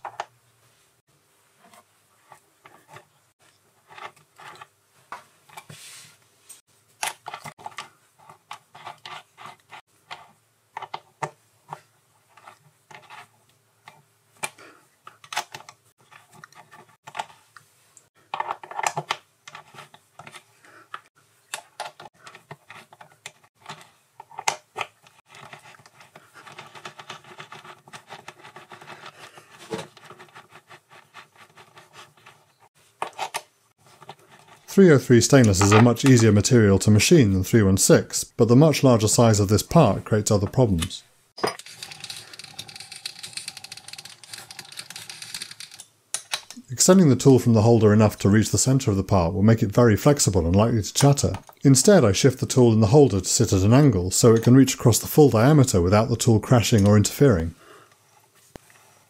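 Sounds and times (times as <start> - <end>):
metal scraping: 41.4 - 45.8
metallic clicks and clinks: 41.4 - 46.6.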